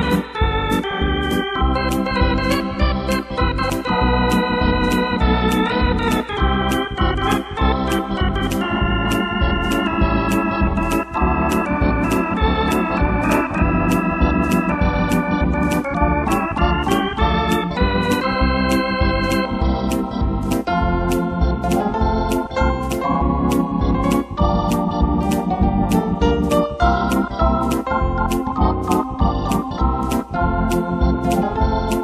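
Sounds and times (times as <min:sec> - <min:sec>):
accompaniment beat: 0:00.0 - 0:32.0
electronic keyboard organ sound: 0:00.0 - 0:32.0.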